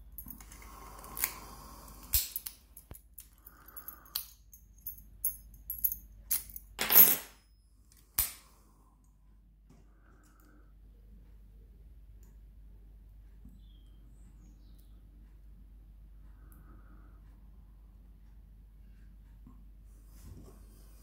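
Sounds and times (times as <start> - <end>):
padlock clattering: 2.1 - 7.3.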